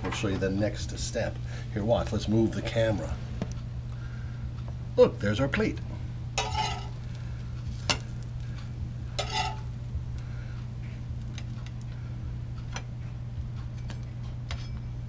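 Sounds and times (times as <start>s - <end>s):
steady low hum: 0.0s - 15.0s
metal spatula clink: 6.4s - 7.0s, 9.2s - 9.7s
spatula scraping cast iron pan: 6.4s - 7.1s, 9.2s - 9.7s.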